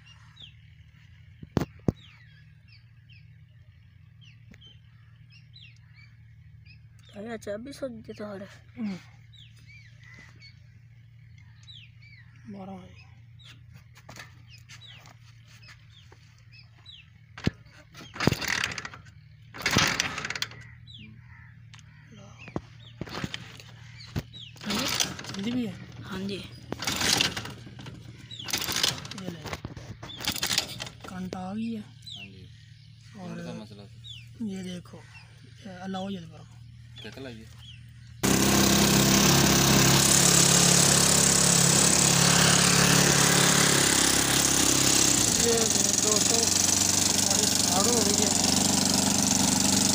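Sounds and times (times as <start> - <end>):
small birds chirping: 0.0 - 49.9
engine cranking: 15.9 - 21.9, 22.6 - 33.1, 37.0 - 49.9.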